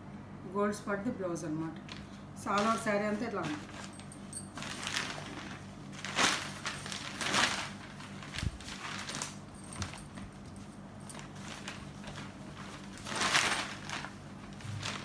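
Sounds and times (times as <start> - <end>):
fabric rustling and swishing: 2.5 - 10.0, 11.0 - 15.0.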